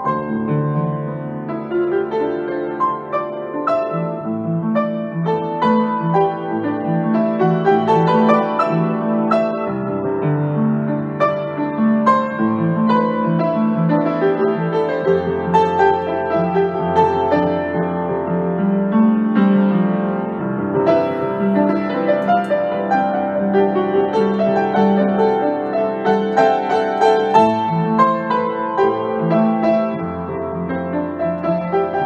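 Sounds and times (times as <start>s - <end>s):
solo piano playing: 0.0s - 32.0s.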